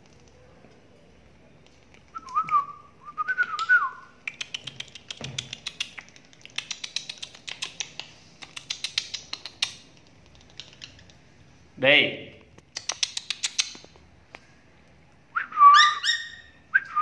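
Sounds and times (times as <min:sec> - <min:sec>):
lovebird clicking chatter: 0:03.4 - 0:11.2, 0:12.6 - 0:14.0
wavering whistle: 0:15.4 - 0:17.0.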